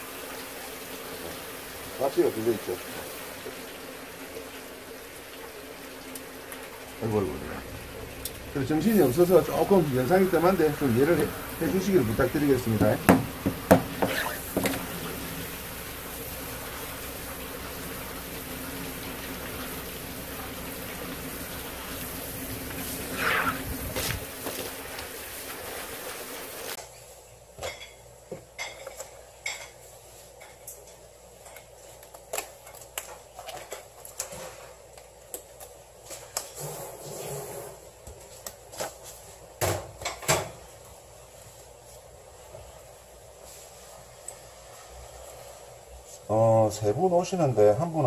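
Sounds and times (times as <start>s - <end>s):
tap water spraying: 0.0s - 26.8s
paper towels rustling: 19.6s - 26.8s.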